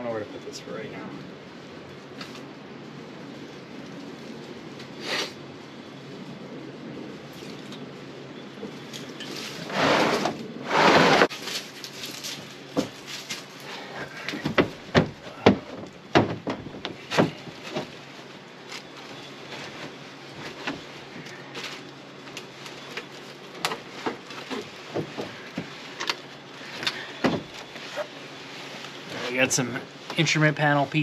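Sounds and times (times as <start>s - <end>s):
car parts knocking and scraping: 9.2s - 13.4s, 14.2s - 18.0s, 22.8s - 28.2s.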